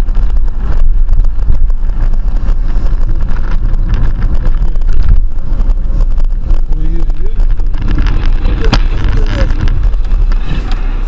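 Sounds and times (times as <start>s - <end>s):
car rumble inside cabin: 0.0s - 11.0s
wind noise: 0.0s - 11.0s.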